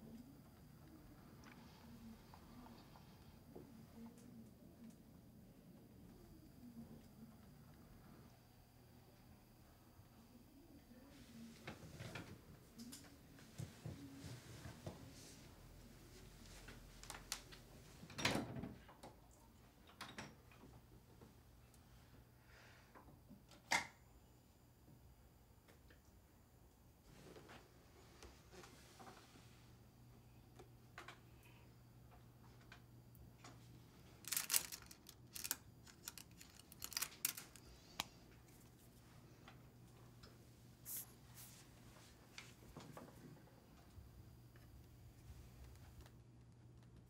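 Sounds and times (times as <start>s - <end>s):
jewellery clinking and rattling: 34.2s - 37.7s.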